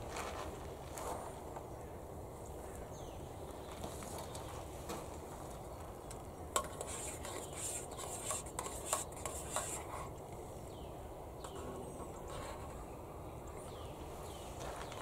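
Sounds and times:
utensil stirring in metal pot: 6.6 - 10.1.

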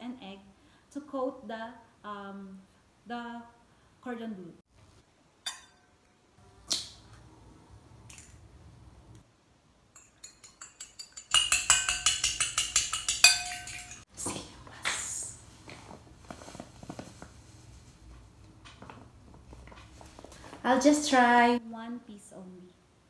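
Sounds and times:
egg cracking on a bowl: 10.0 - 14.0
fork beating egg in a bowl: 10.0 - 14.0
plastic bag rustling: 15.6 - 18.2.

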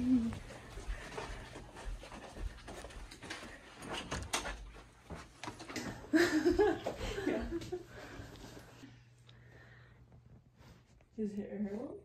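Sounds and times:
footsteps on carpet: 0.0 - 5.7.

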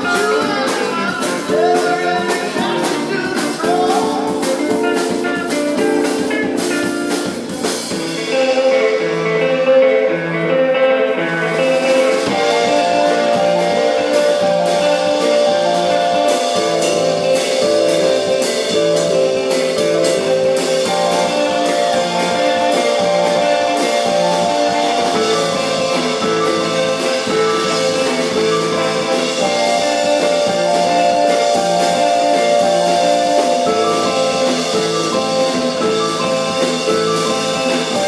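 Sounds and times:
drum kit: 0.0 - 38.0
electric guitars: 0.0 - 38.0
keyboard chords: 0.0 - 38.0.

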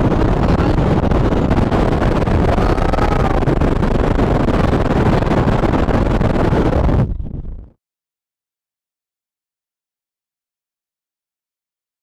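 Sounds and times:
wind buffeting microphone: 0.0 - 7.8.

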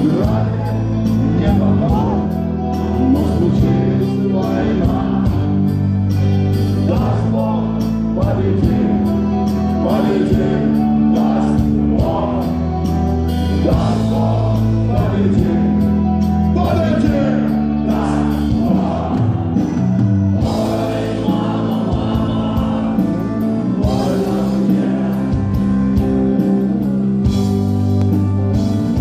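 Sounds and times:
man singing into a microphone: 0.0 - 5.7, 6.4 - 12.6, 13.5 - 15.9, 16.6 - 19.2, 20.4 - 26.7
rock band playing live: 0.0 - 29.0.

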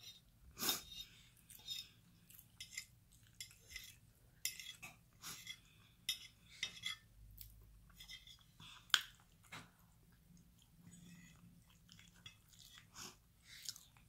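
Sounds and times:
fork scraping a plate: 0.0 - 7.1, 7.9 - 8.5
chewing: 1.2 - 4.0, 7.4 - 14.0.

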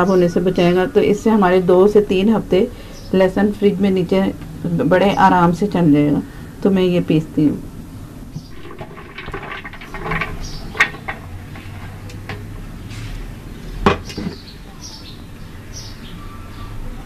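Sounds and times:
garlic clattering into blender jar: 8.4 - 12.5.

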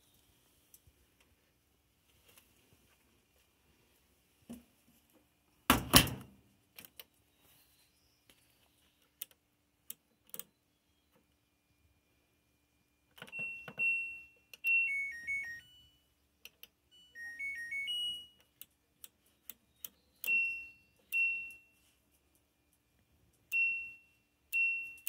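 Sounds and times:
dryer panel beeping: 13.2 - 15.6
three-note beep tune: 13.3 - 16.0, 16.9 - 18.4.

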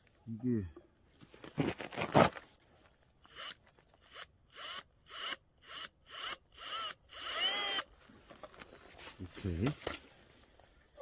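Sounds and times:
cordless power tool motor whining: 3.3 - 7.9.

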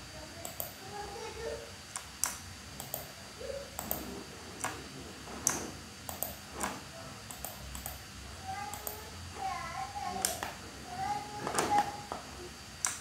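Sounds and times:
computer mouse clicking: 0.4 - 0.8, 1.9 - 3.2, 3.8 - 4.8, 5.4 - 8.0, 8.7 - 9.0, 10.2 - 10.6, 12.8 - 13.0.

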